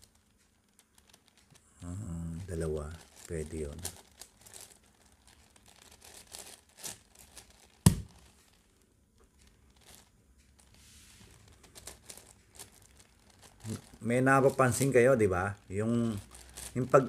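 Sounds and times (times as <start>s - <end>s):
sharp loud knock: 7.9s - 8.1s.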